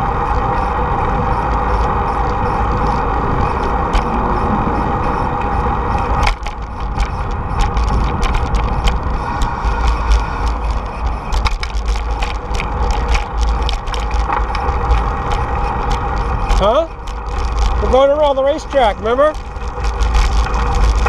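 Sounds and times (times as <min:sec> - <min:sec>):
bicycle rolling noise: 0:00.0 - 0:21.0
wind rumble: 0:00.0 - 0:21.0
rattling knocks of bike: 0:06.0 - 0:21.0.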